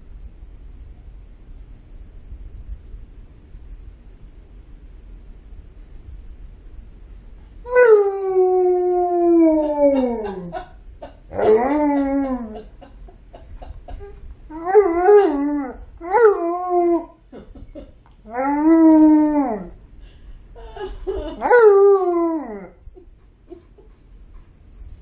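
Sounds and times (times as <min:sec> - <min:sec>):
dog howling: 0:07.6 - 0:10.6, 0:11.3 - 0:12.7, 0:14.0 - 0:17.2, 0:18.3 - 0:19.8, 0:21.4 - 0:22.8.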